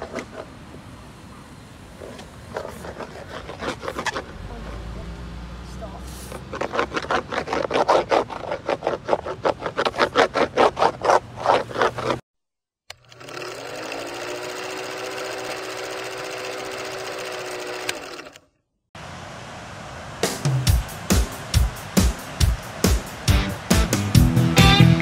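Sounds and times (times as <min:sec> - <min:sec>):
wax rubbed onto surfboard: 0:02.0 - 0:04.9, 0:06.0 - 0:12.2
film projector whirring: 0:12.9 - 0:18.4.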